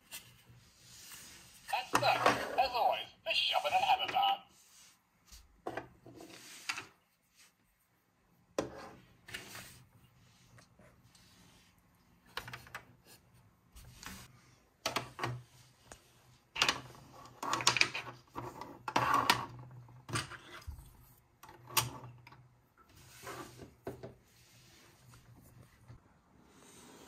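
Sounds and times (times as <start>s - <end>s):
plastic toys clicking and tapping: 16.6s - 18.2s.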